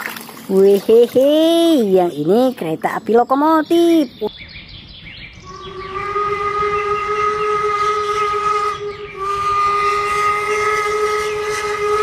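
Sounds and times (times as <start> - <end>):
steam locomotive whistle: 5.5 - 12.0.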